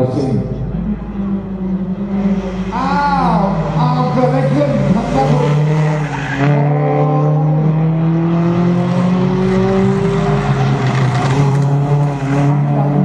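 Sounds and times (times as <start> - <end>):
race car engines running hard: 0.0 - 13.0.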